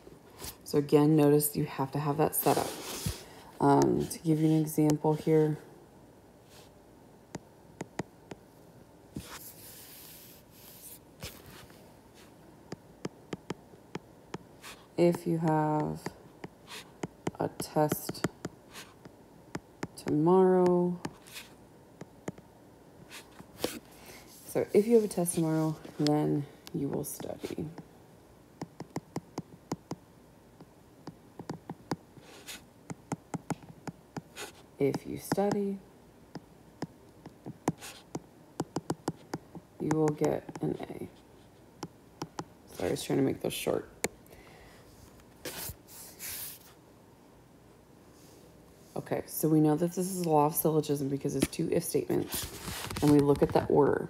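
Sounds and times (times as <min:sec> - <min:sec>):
stylus scratching on glass screen: 0:23.1 - 0:26.1.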